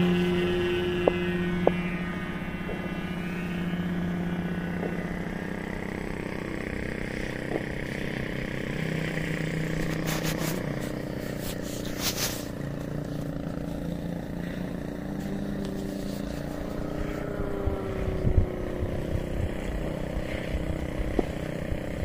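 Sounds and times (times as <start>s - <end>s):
model plane propeller droning: 0.0s - 22.0s
brief rustles: 9.8s - 13.4s.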